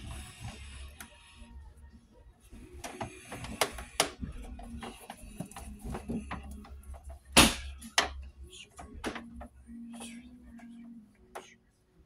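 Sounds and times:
wire clicking and rustling on metal: 0:02.4 - 0:11.6.

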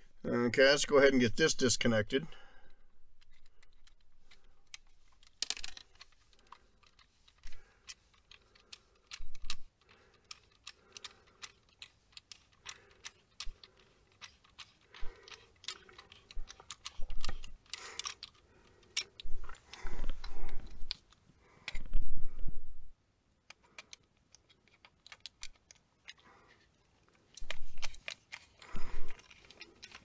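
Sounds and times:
wires rattling: 0:02.8 - 0:22.8, 0:23.5 - 0:30.0.

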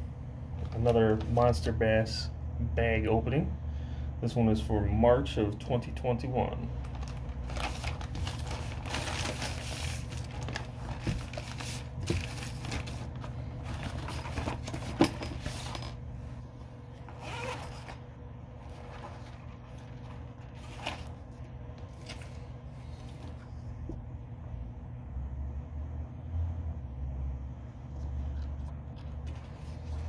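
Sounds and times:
plastic bag crinkling: 0:06.8 - 0:15.9
plastic mailer ripping and rustling: 0:06.8 - 0:16.0, 0:17.0 - 0:21.3.

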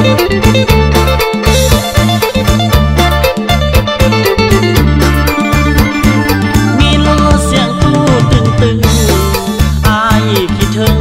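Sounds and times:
band with bass and drums: 0:00.0 - 0:11.0
man singing pop song: 0:06.7 - 0:11.0.

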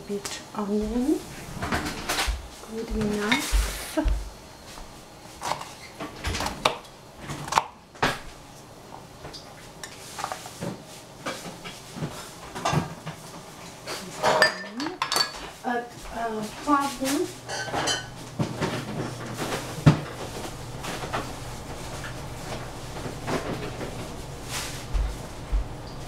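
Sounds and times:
kitchen utensils knocking and clinking: 0:14.2 - 0:15.6, 0:16.7 - 0:20.2.

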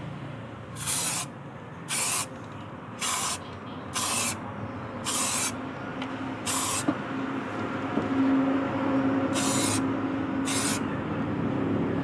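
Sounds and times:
spray can hissing: 0:00.8 - 0:01.3, 0:01.9 - 0:02.3, 0:03.0 - 0:03.4, 0:04.0 - 0:04.4, 0:05.1 - 0:05.6, 0:06.5 - 0:06.9, 0:09.4 - 0:09.8, 0:10.5 - 0:10.8.

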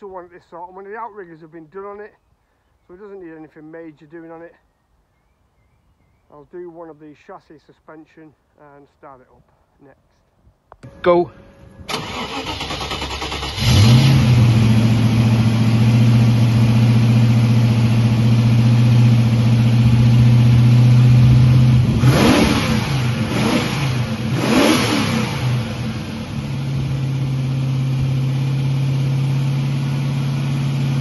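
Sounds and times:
car engine idling and revving: 0:10.8 - 0:31.0.

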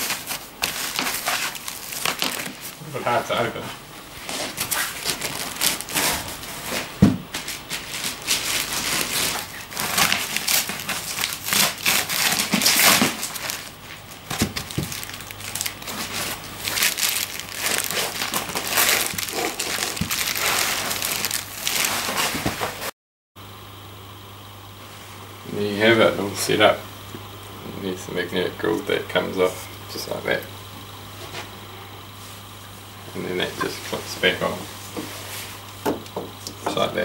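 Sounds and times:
plastic bag crinkling: 0:00.0 - 0:03.5, 0:04.2 - 0:22.9
foam packing handled: 0:00.0 - 0:03.6, 0:04.2 - 0:22.9.

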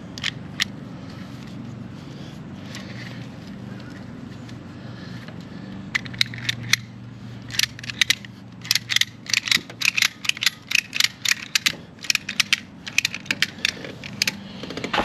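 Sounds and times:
ratchet strap clicking: 0:05.8 - 0:14.9.

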